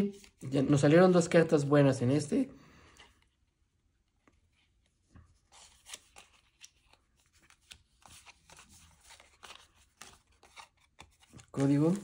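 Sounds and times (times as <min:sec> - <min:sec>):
trading cards rustling and clicking: 0:05.4 - 0:12.0.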